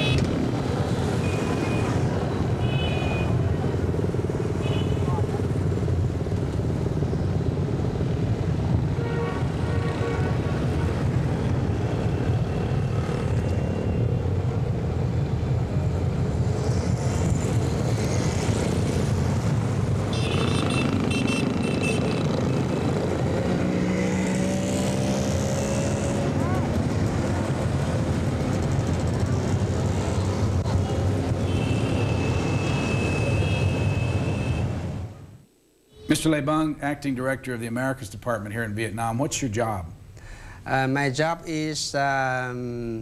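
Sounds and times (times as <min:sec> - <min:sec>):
motorbikes riding past: 0:03.4 - 0:14.5, 0:15.9 - 0:35.1.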